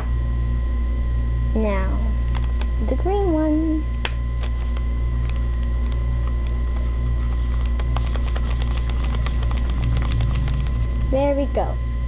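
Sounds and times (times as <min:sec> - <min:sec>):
low electrical hum: 0:00.0 - 0:12.0
marker scratching on paper: 0:06.8 - 0:10.8
marker cap clicking: 0:07.3 - 0:10.6.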